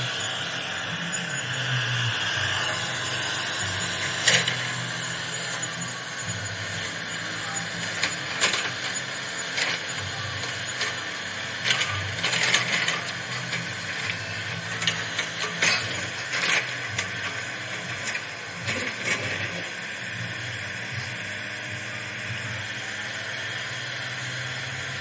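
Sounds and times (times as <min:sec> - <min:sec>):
gear motors whirring and ratcheting: 0:00.0 - 0:25.0
steady motor hum: 0:00.0 - 0:25.0.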